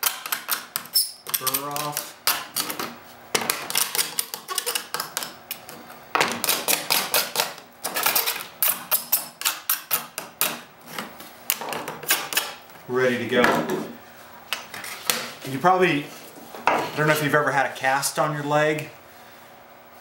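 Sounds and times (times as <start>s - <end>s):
hand tool scraping plastic edges: 0.0s - 12.6s.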